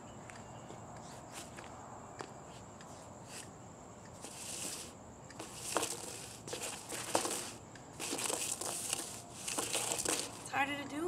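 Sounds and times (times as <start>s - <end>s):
boots scuffing on concrete: 0.2s - 3.6s, 4.2s - 10.6s
hula hoop hitting ground: 4.2s - 10.6s.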